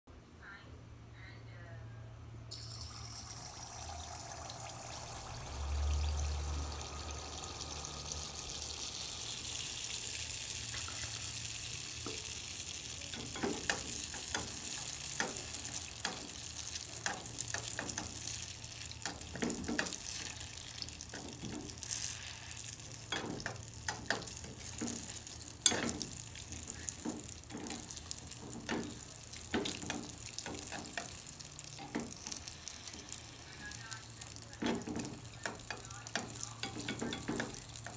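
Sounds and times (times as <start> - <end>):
batter sizzling in hot oil: 2.5 - 37.9.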